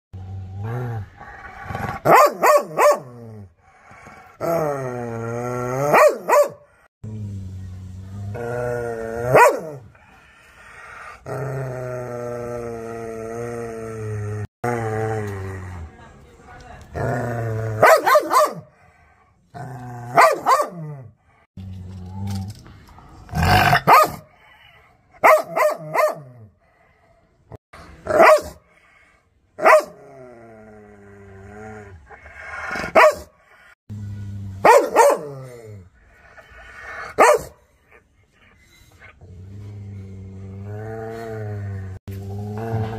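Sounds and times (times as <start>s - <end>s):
dog growling: 0.2s - 2.1s, 7.0s - 16.1s, 29.8s - 37.4s, 38.5s - 42.9s
dog barking: 2.0s - 3.1s, 5.9s - 6.7s, 9.3s - 9.8s, 17.8s - 18.7s, 20.2s - 20.8s, 23.8s - 24.3s, 25.2s - 26.3s, 28.2s - 28.6s, 29.6s - 30.0s, 32.9s - 33.3s, 34.6s - 35.3s, 37.2s - 37.6s.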